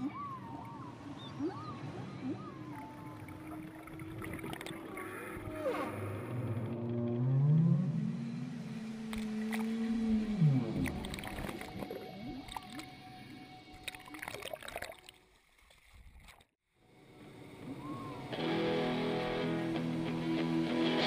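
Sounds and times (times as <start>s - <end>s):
water splashing against hull: 0.0s - 6.8s, 9.1s - 16.5s
guitar music: 18.1s - 21.0s.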